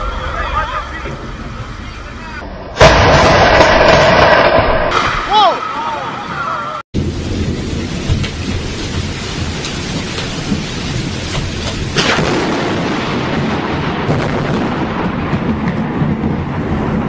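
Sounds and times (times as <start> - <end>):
low thunder rumble: 0.0 - 5.4, 7.0 - 17.0
sharp thunder crack: 2.6 - 5.7, 7.0 - 17.0
steady rain hiss: 5.9 - 14.6.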